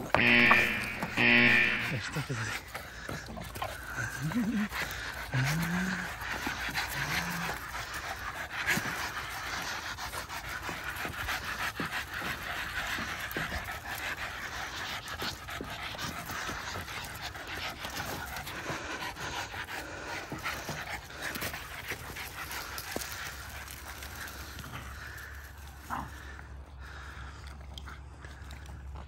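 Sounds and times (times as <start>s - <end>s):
dogs panting: 0.0s - 29.0s.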